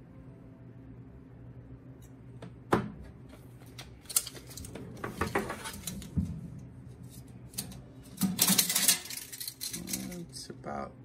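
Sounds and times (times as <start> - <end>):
tape measure clicking and rattling: 4.0 - 4.7.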